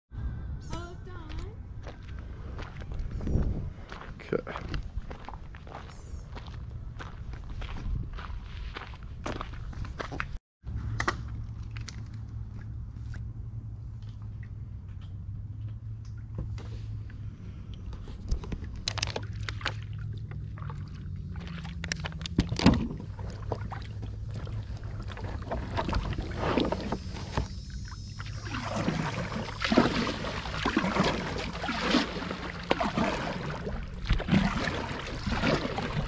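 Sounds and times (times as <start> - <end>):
steady low hum: 10.6 - 36.0
kayak paddles splashing in water: 18.0 - 36.0.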